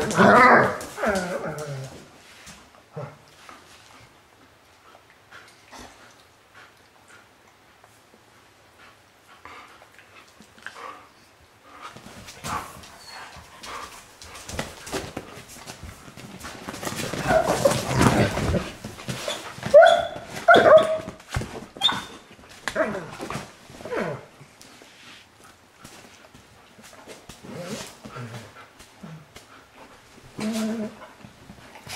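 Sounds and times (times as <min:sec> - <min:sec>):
scuffling noises: 0:11.8 - 0:24.0.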